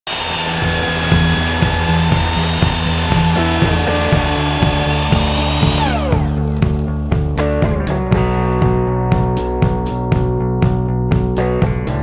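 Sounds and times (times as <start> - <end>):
miter saw motor whine: 0.0 - 7.8
background music with beat: 0.7 - 12.0.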